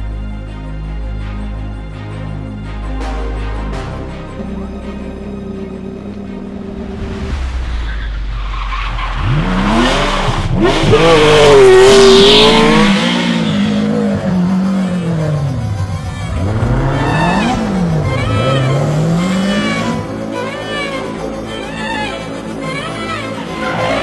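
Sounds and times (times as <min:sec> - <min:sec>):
rally car engine at full throttle: 0:05.4 - 0:24.0.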